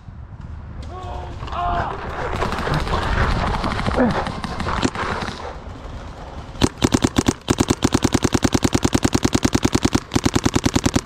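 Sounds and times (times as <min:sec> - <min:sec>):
paintball marker rapid shots: 0:02.3 - 0:05.6, 0:06.6 - 0:11.0.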